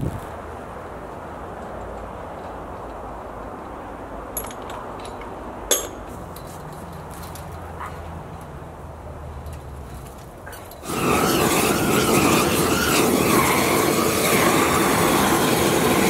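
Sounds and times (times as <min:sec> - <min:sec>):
outdoor background noise: 0:00.0 - 0:16.0
chain-link fence clinking: 0:04.4 - 0:07.7.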